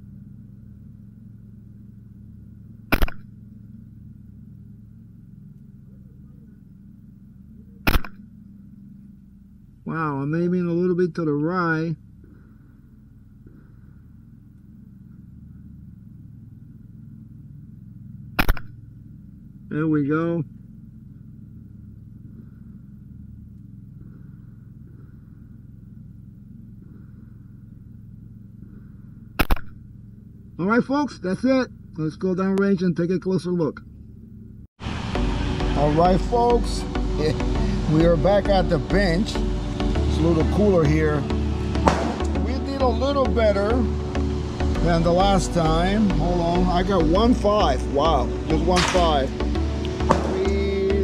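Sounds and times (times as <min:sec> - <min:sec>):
low background hum: 0:00.0 - 0:51.0
rifle shots: 0:02.9 - 0:03.3, 0:07.8 - 0:08.2, 0:41.8 - 0:42.3, 0:48.8 - 0:49.1, 0:50.0 - 0:50.5.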